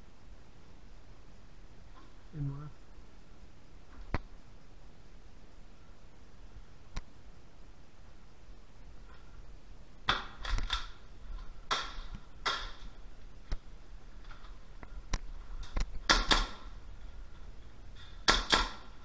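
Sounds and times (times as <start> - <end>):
airsoft gunfire: 10.0 - 11.0, 11.6 - 13.0, 16.0 - 16.8, 18.0 - 19.0.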